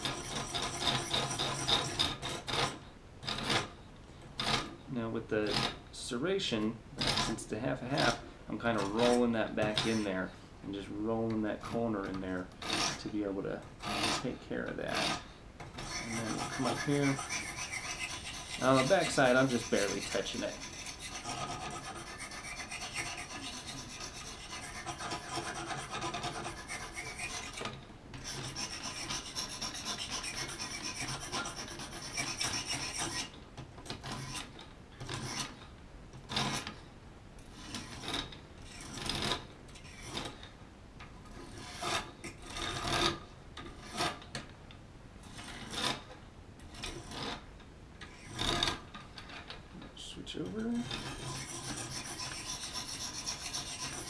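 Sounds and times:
sharpening stone rasping on blade: 0:00.0 - 0:03.7, 0:08.8 - 0:10.2, 0:12.6 - 0:13.1, 0:14.9 - 0:33.3, 0:34.0 - 0:34.5, 0:50.8 - 0:54.0.

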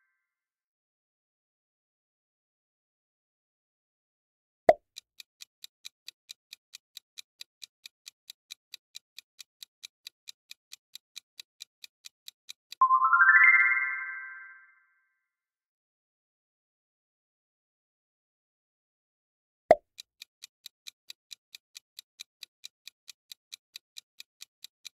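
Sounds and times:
quick timer ticks: 0:04.7 - 0:12.9, 0:19.7 - 0:24.9
bright rising chime: 0:12.8 - 0:14.8.

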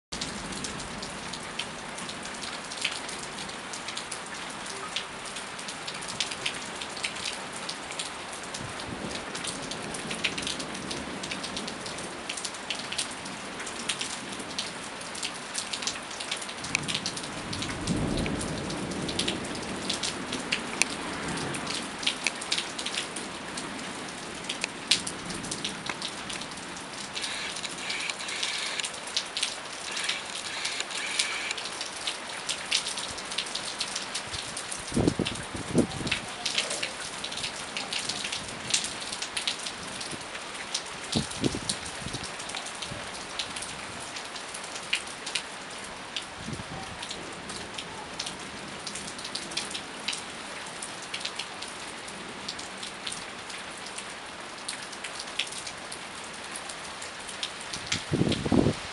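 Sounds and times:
steady rain falling: 0:00.1 - 0:58.9
low rumble of thunder: 0:16.8 - 0:22.0, 0:34.4 - 0:36.1.

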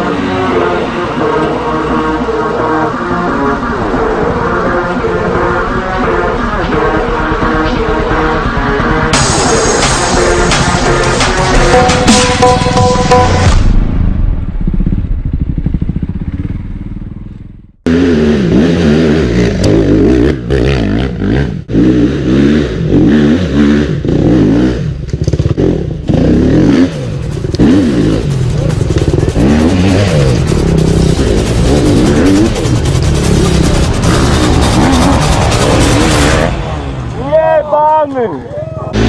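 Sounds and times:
motorcycle engine revving: 0:00.0 - 0:13.6, 0:14.3 - 0:37.3, 0:38.8 - 0:39.0.

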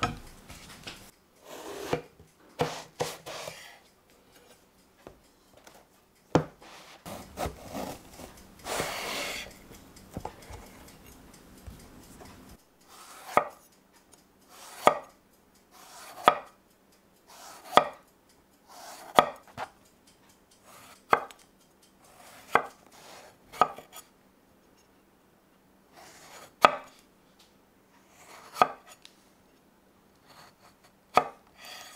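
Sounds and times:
knife cutting on wooden board: 0:01.4 - 0:03.8, 0:06.4 - 0:10.8, 0:12.9 - 0:13.7, 0:14.5 - 0:15.1, 0:15.7 - 0:16.5, 0:17.3 - 0:18.0, 0:18.7 - 0:19.7, 0:22.1 - 0:24.0, 0:26.0 - 0:26.9, 0:28.1 - 0:29.0
rustling of vegetable halves: 0:05.6 - 0:09.5.

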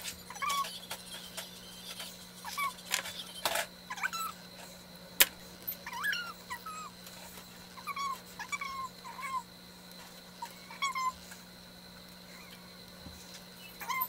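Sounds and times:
pet animal whining: 0:00.3 - 0:04.8, 0:05.7 - 0:11.4, 0:12.3 - 0:12.7, 0:13.6 - 0:14.0.

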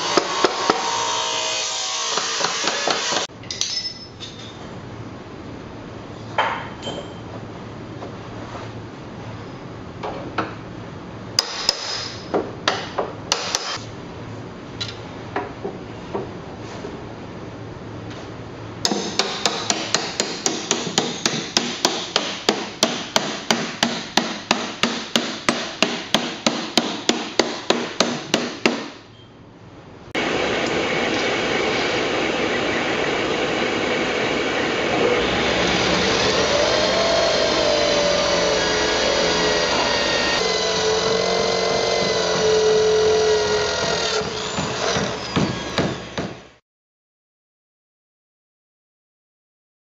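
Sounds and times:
power drill whirring: 0:30.2 - 0:46.2.

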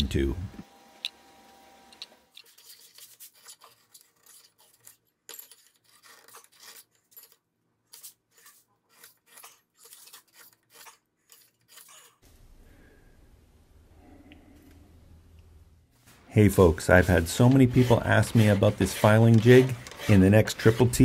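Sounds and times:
metal scraping on stone: 0:02.3 - 0:12.2, 0:17.0 - 0:21.0.

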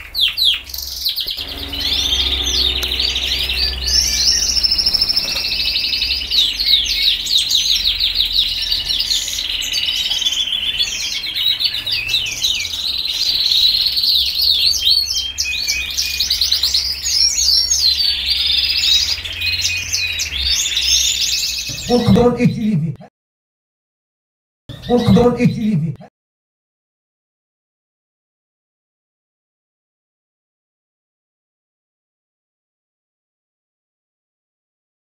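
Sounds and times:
canaries singing trills: 0:00.0 - 0:22.6, 0:24.7 - 0:25.7.

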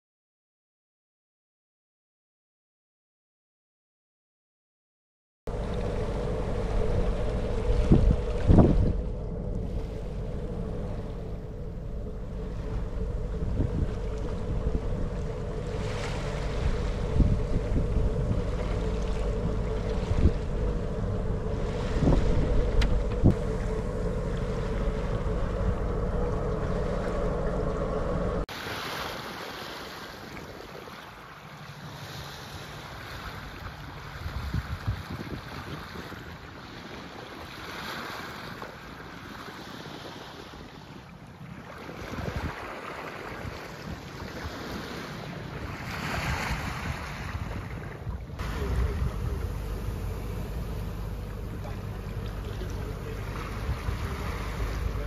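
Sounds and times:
water wash: 0:05.5 - 0:39.3, 0:41.1 - 0:55.0
boat engine drone: 0:05.5 - 0:55.0
wind on the microphone: 0:05.6 - 0:28.4, 0:34.0 - 0:36.4, 0:41.5 - 0:55.0.

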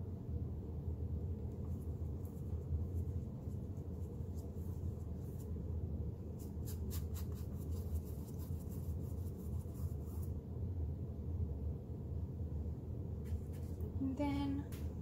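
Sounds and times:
steady low hum: 0:00.0 - 0:15.0
paintbrush strokes on canvas: 0:01.7 - 0:05.6, 0:06.3 - 0:10.4.

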